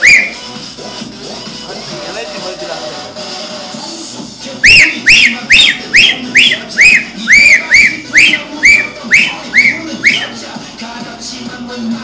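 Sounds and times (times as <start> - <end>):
person whistling short piercing notes: 0.0 - 0.4, 4.6 - 10.4
faint music: 0.0 - 12.0.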